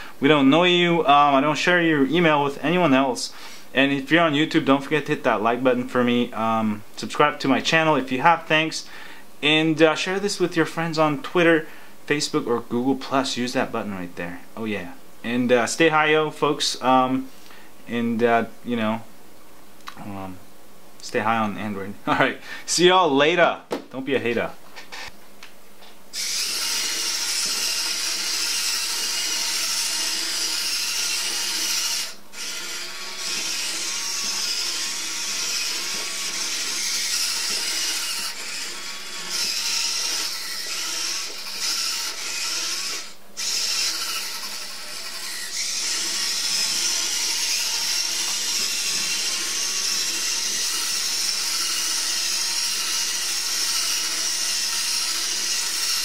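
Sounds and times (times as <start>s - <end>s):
toy motor and gears whirring: 26.2s - 56.0s.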